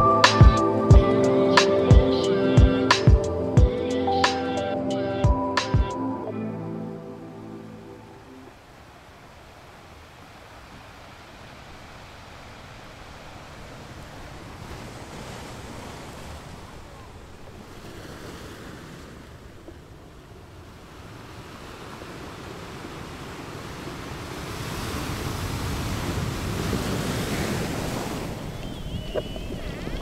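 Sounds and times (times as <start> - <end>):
dolphin whistles and clicks: 28.5 - 30.0.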